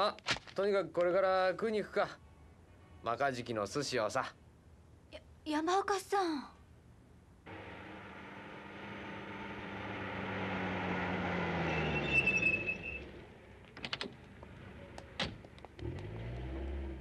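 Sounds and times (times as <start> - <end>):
brake squeal: 7.5 - 13.3
car engine: 7.5 - 17.0.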